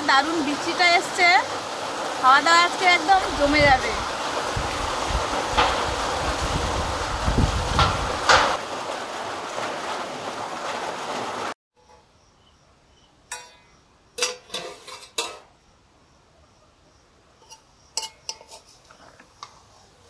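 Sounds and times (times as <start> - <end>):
steady rain: 0.0 - 11.6
metal spoon clinking on a pot: 13.3 - 15.4, 17.4 - 18.7.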